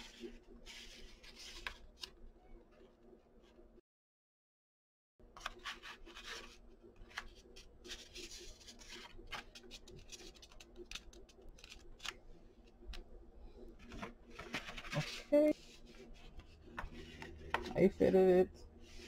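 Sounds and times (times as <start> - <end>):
paper rustling and crinkling: 0.0 - 2.9, 5.4 - 12.2, 13.8 - 18.1
faint steady hum: 5.2 - 19.0.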